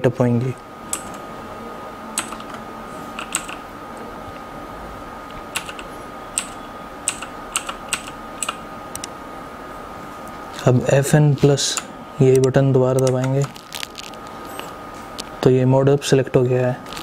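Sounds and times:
mechanical keyboard clicks: 2.2s - 2.6s, 5.5s - 9.1s.

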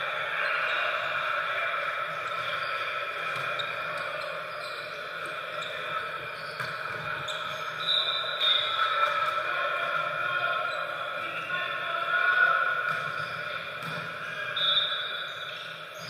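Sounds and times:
gymnasium hall noise: 0.0s - 16.0s
volleyball contacts: 12.7s - 15.5s.

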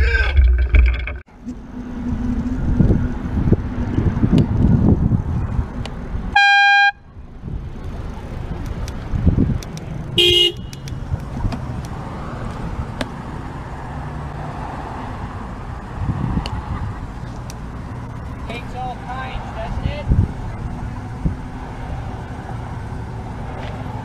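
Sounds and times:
wind rumble: 0.0s - 6.4s, 7.0s - 24.0s
traffic noise: 1.3s - 24.0s
bicycle horn honks: 6.3s - 7.1s, 10.2s - 10.9s.

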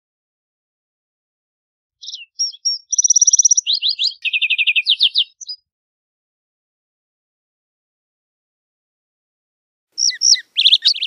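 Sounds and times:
sparrow singing trills: 2.0s - 5.7s, 10.0s - 11.0s.

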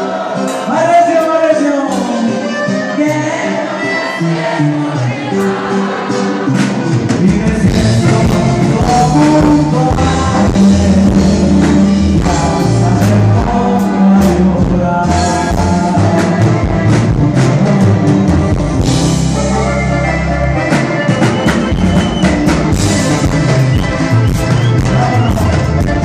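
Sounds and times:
button accordion: 0.0s - 26.0s
man singing into a microphone: 0.5s - 6.2s, 6.8s - 18.3s, 24.6s - 26.0s
drum kit: 5.4s - 26.0s.

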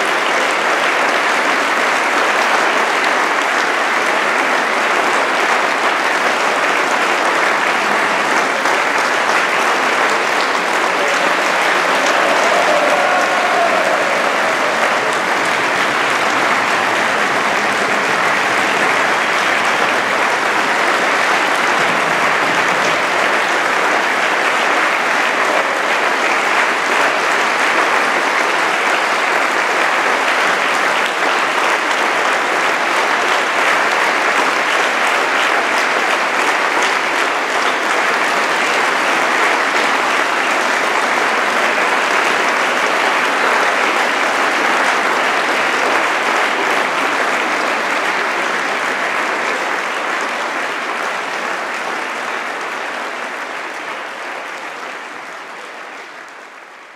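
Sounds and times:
crowd applauding: 0.0s - 56.9s.

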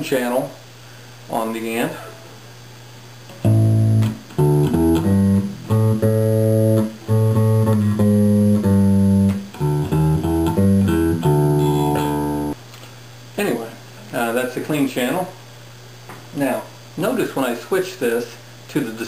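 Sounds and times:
electric bass plucked notes: 3.3s - 12.6s.

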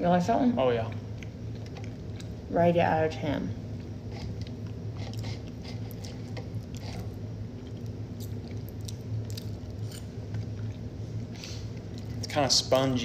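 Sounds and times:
low room hum: 0.0s - 13.0s
chewing: 0.8s - 2.4s, 3.7s - 12.3s.

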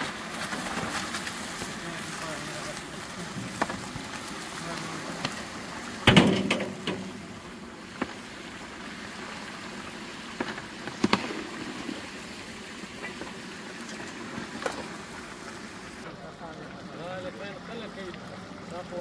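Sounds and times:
sharp clanks and knocks: 6.0s - 7.4s.

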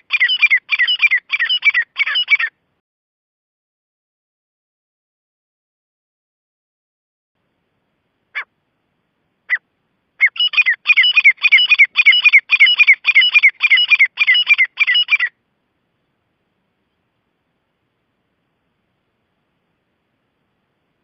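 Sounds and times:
francolin calling: 0.0s - 2.6s, 8.3s - 8.6s, 9.5s - 15.4s.

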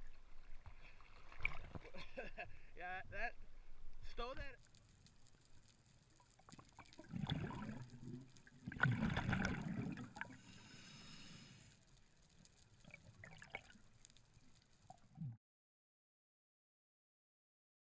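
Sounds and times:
water gurgling and sloshing: 0.0s - 2.7s, 3.3s - 15.4s
faint hiss: 10.2s - 12.8s.

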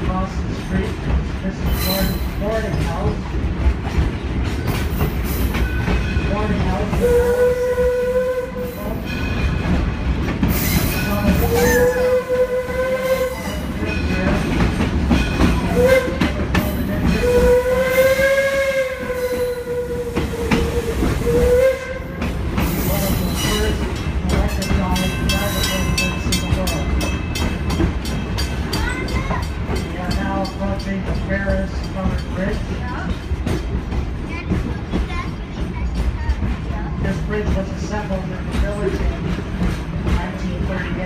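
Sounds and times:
train wheels clicking: 0.0s - 8.0s, 8.6s - 41.0s
train rumbling: 0.0s - 41.0s
steam locomotive whistle blasts: 7.0s - 8.8s, 11.4s - 13.5s, 17.2s - 22.2s.

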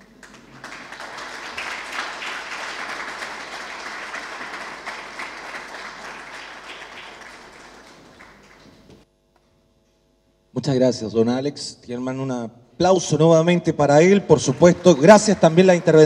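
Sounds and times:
audience applauding: 0.0s - 9.0s, 13.9s - 16.0s.

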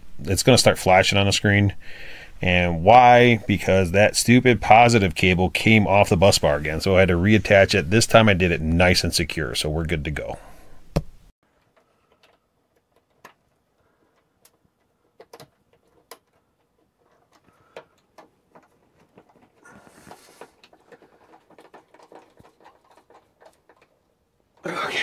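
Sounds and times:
wires clicking and rustling: 11.5s - 24.8s.

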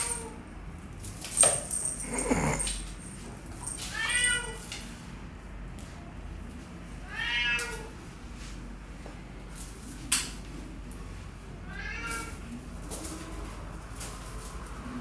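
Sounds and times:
cat meowing: 3.9s - 4.6s, 7.0s - 7.9s, 11.6s - 12.4s.

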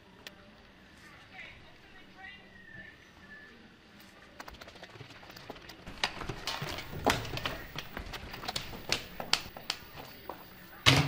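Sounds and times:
shoes clicking on hard floor: 5.8s - 10.6s.

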